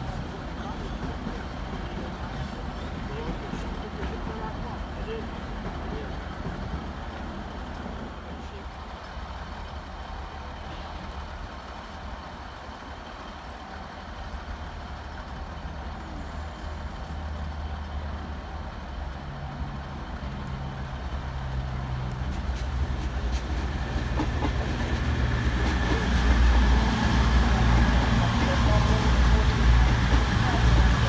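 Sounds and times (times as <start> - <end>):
diesel train running past: 0.0 - 31.0.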